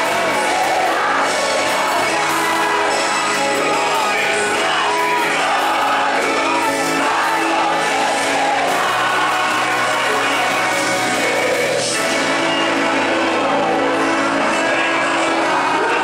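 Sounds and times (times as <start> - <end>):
band music: 0.0 - 16.0
congregation singing along: 0.0 - 16.0
lead singer singing: 0.0 - 16.0.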